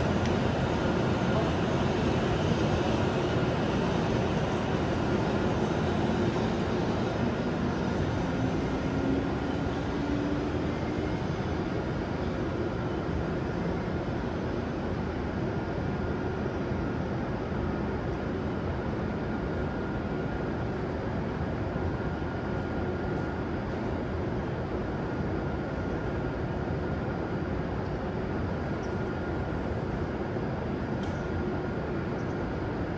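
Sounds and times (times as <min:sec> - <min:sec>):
railway station rumble and hiss: 0:00.0 - 0:32.9.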